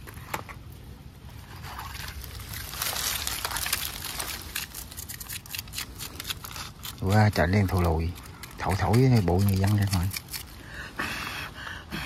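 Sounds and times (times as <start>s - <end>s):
stick scraping grilled fish skin: 2.8s - 10.6s.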